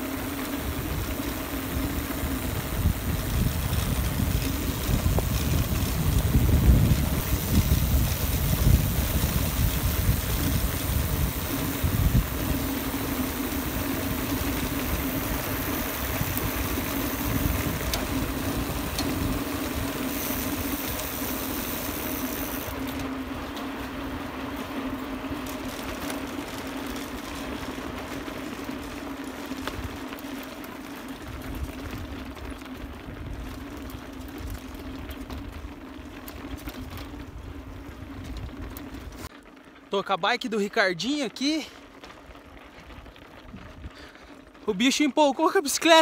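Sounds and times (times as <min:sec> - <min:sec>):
wind buffeting microphone: 0:00.5 - 0:22.8
tyres rumbling over stones: 0:00.8 - 0:23.3.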